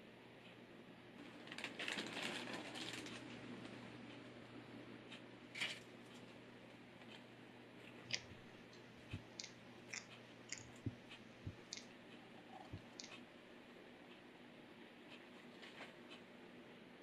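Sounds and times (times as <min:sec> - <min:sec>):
gecko chewing crunching: 0:07.8 - 0:13.2.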